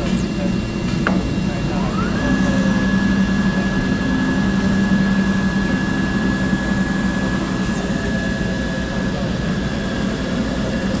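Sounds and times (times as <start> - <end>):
cutting machine humming: 0.0 - 11.0
high-pitched machine whine: 0.0 - 11.0.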